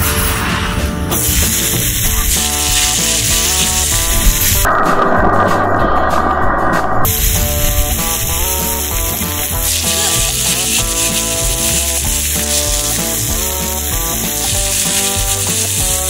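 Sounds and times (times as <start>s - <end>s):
music with sustained notes: 0.0s - 6.1s, 7.1s - 16.0s
ground beef sizzling in a skillet: 1.2s - 4.7s, 7.1s - 16.0s.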